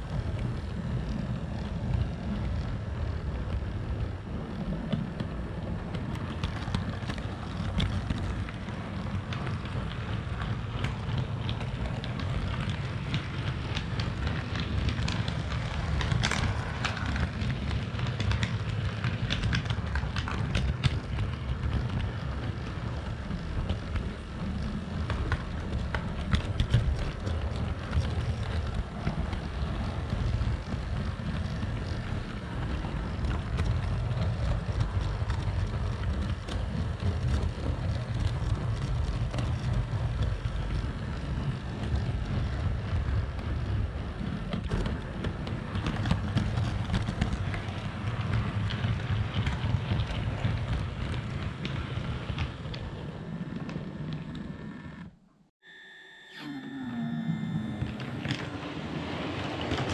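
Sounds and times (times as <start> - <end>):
model train rumbling on track: 0.0 - 55.1, 57.6 - 59.9
wheels clicking over rails: 0.0 - 55.2, 57.6 - 59.9
steady high tone: 55.6 - 58.8.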